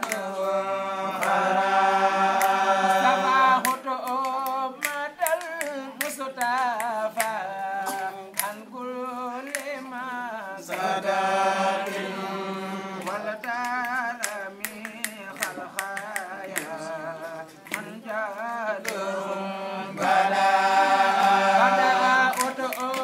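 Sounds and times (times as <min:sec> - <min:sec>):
sharp percussive taps: 0:00.0 - 0:00.3, 0:02.3 - 0:08.7, 0:09.4 - 0:09.8, 0:13.0 - 0:19.1, 0:22.3 - 0:23.0
voices chanting ornamented melody: 0:00.0 - 0:23.0.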